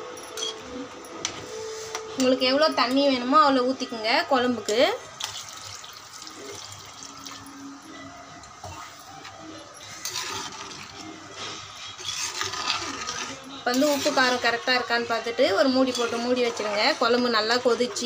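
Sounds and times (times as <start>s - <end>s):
water pouring and splashing: 5.2s - 7.5s
metal ladle scraping pot: 9.8s - 18.0s.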